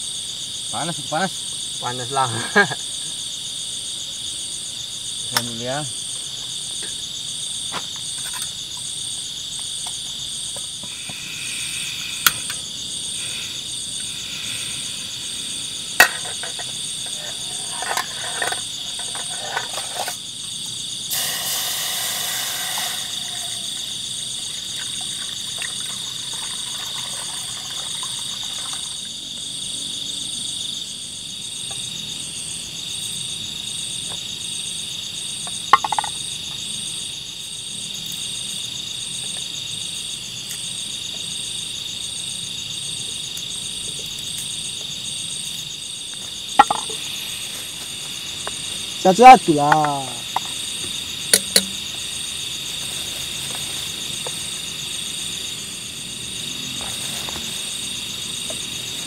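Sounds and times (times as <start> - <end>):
insects shrilling: 0.0 - 29.6, 31.7 - 59.0
pulsing insect trill: 0.0 - 59.0
short hiss: 21.1 - 23.6.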